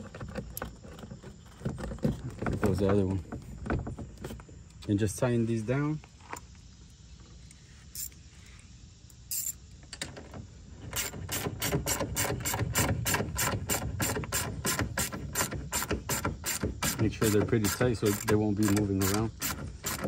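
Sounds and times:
ratchet wrench clicking: 7.9s - 8.2s, 9.3s - 9.6s, 11.0s - 20.0s.

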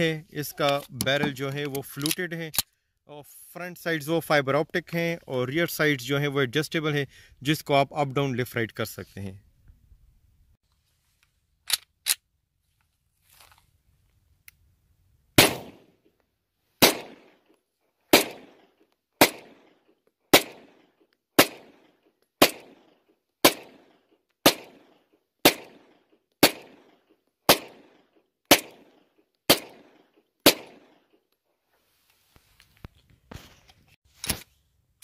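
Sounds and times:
pistol shots with echo: 15.4s - 15.9s, 16.8s - 17.4s, 18.1s - 18.6s, 19.2s - 19.7s, 20.3s - 20.8s, 21.4s - 31.0s.

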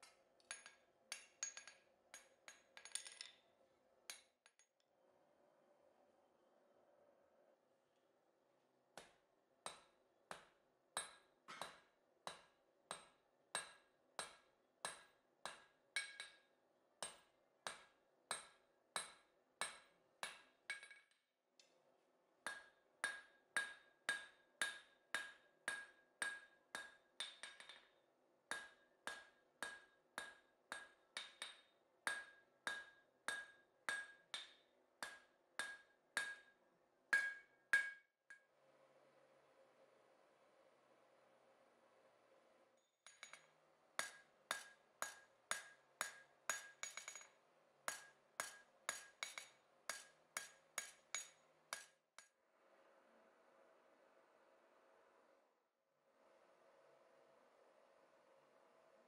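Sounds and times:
hammer ringing on steel anvil: 37.2s - 38.0s.

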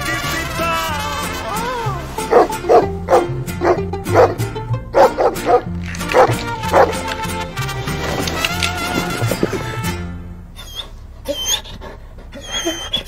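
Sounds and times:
music with bass line: 0.2s - 10.3s
dog barking: 2.3s - 4.4s, 5.0s - 7.0s
dog whining: 10.6s - 13.0s.

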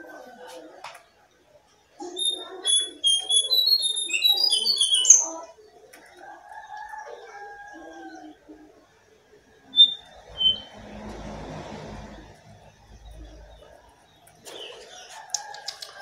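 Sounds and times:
songbird chirps and whistles: 2.0s - 5.4s, 9.7s - 10.8s.

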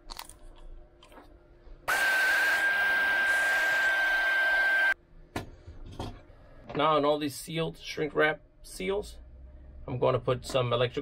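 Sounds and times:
heat gun blowing with whine: 1.9s - 5.0s.

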